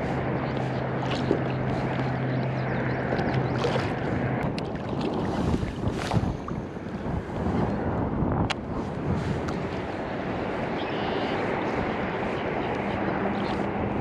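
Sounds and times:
water lapping: 0.0 - 7.8
low hum: 0.0 - 14.0
wind buffeting the microphone: 0.0 - 14.0.

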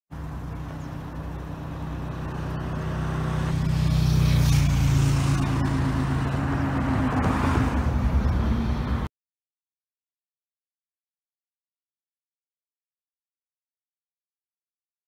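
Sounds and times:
vehicle engine humming: 0.1 - 9.1.

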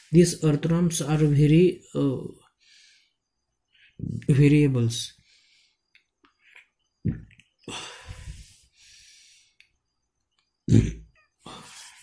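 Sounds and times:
short low vocal sounds: 7.1 - 8.4, 10.7 - 11.6
person breathing into microphone: 7.7 - 9.6.

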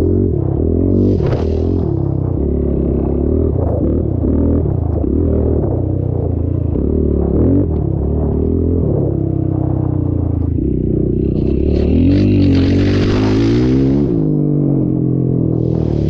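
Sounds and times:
dirt bike engine revving: 0.0 - 5.6, 11.1 - 14.5, 15.6 - 16.0.

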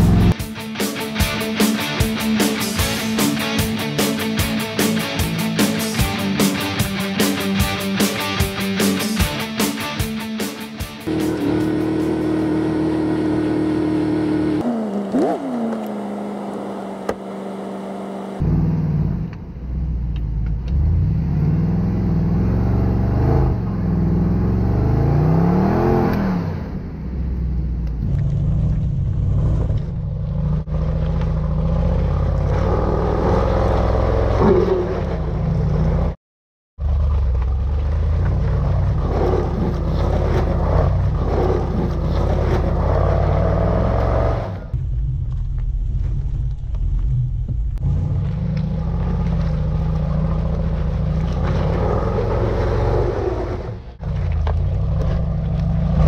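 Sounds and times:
suv engine revving: 0.0 - 0.4, 11.0 - 36.2, 36.8 - 44.8, 47.4 - 56.0.

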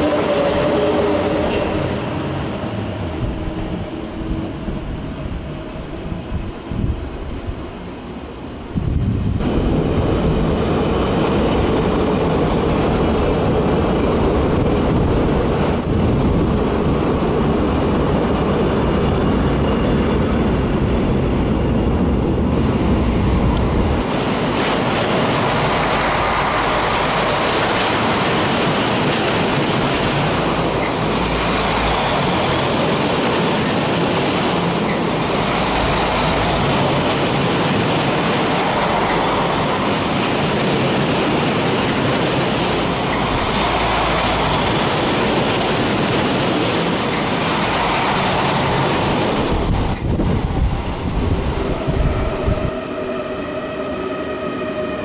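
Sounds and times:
train rumbling over bridge: 0.0 - 55.0.

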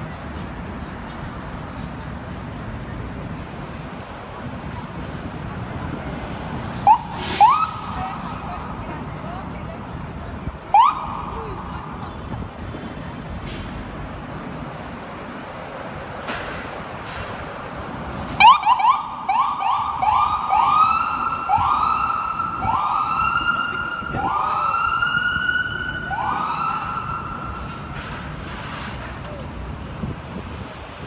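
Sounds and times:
street traffic: 0.0 - 31.0
ambulance siren: 6.8 - 8.4, 10.7 - 11.4, 18.4 - 27.7.

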